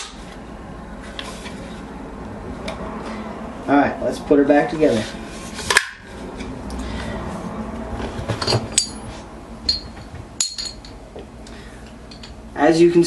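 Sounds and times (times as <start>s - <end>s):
light metallic clinks: 9.7s - 11.0s.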